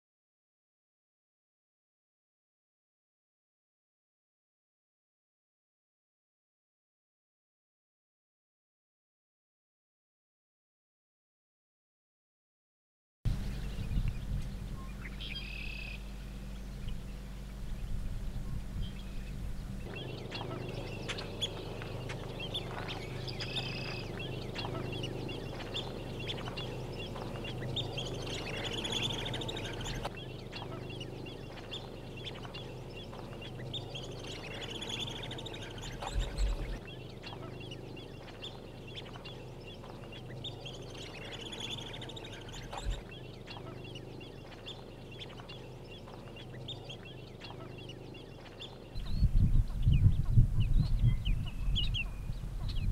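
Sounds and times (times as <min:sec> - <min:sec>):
birds chirping and calling: 0:13.3 - 0:52.9.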